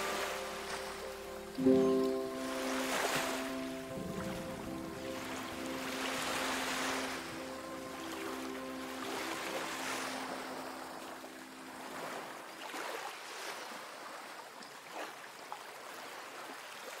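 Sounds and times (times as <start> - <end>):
faint held music notes: 0.0 - 12.6
ocean waves washing in: 0.0 - 17.0.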